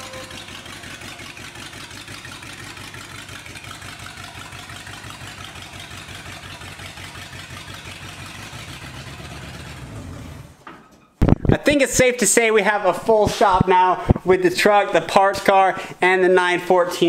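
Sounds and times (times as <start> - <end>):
truck engine idling: 0.0 - 10.6.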